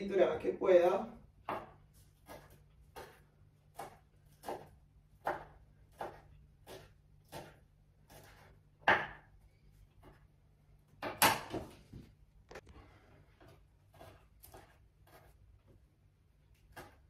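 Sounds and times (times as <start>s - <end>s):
knife chopping on wooden board: 1.3s - 9.4s, 13.4s - 15.4s, 16.5s - 17.0s.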